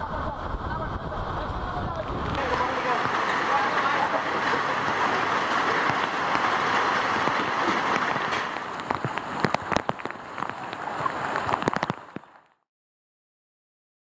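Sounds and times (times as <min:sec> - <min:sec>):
heavy rain on water: 0:00.0 - 0:12.6
water drops splashing: 0:02.3 - 0:12.6.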